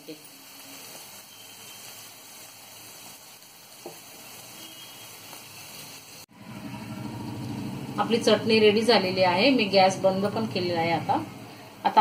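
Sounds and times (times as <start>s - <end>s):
paste sizzling in a pan: 0.0s - 6.3s.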